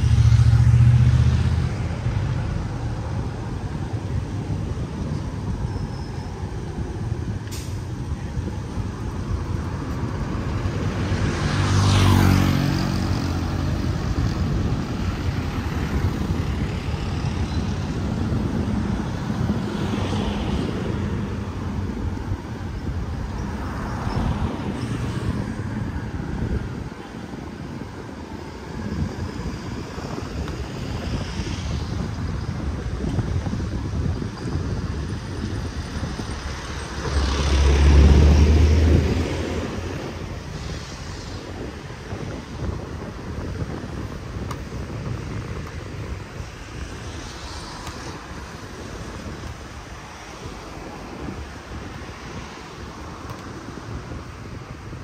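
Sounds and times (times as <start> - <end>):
background traffic hum: 0.0 - 55.0
vehicle passing close: 10.3 - 18.7, 35.7 - 41.6.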